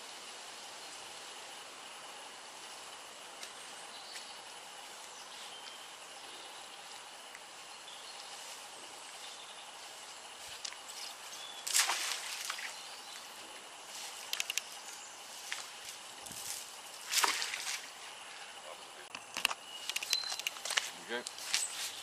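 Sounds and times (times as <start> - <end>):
faint high whine: 0.0 - 22.0
outdoor background hiss: 0.0 - 22.0
small clicks: 14.2 - 14.7, 19.1 - 21.4.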